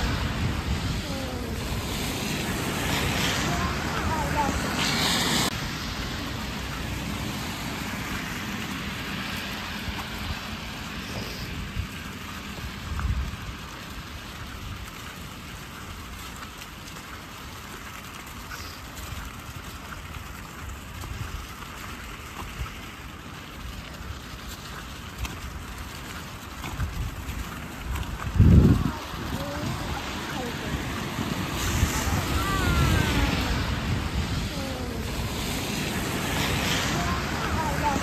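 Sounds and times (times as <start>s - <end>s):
car passing: 0.0s - 11.1s, 28.9s - 38.0s
tyres hissing on wet road: 0.0s - 38.0s.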